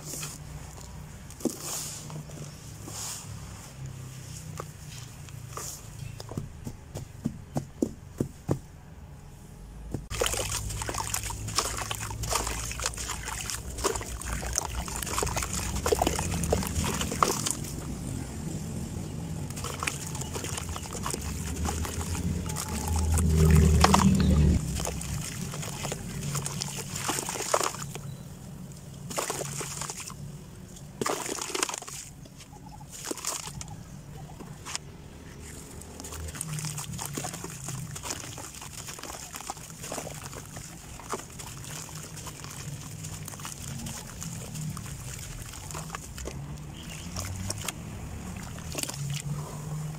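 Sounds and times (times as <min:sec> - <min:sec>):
water sloshing and splashing: 0:00.0 - 0:06.9, 0:09.9 - 0:49.9.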